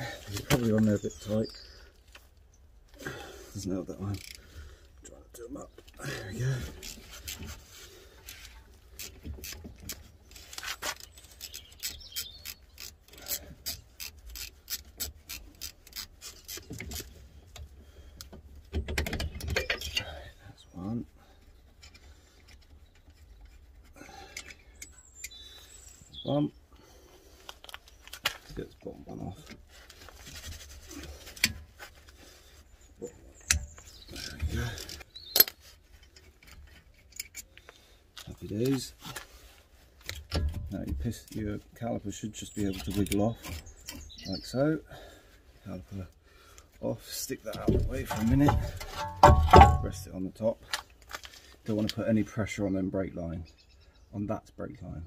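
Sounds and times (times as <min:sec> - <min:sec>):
hand ratchet clicking: 0:11.4 - 0:17.0.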